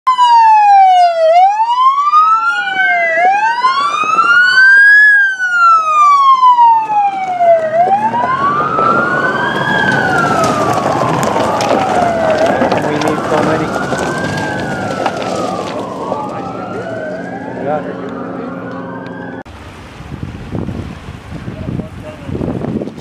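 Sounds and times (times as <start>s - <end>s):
emergency sirens wailing: 0.1s - 19.5s
engine and road noise: 0.1s - 23.0s.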